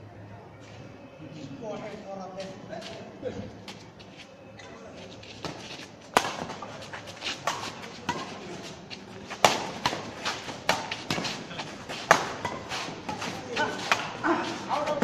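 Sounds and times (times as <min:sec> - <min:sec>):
racket striking shuttlecock: 0:05.4 - 0:15.0.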